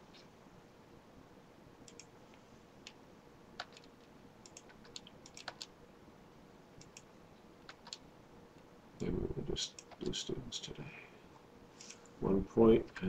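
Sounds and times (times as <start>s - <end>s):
typing on computer keyboard: 1.9s - 2.1s, 3.6s - 5.7s, 7.6s - 8.0s.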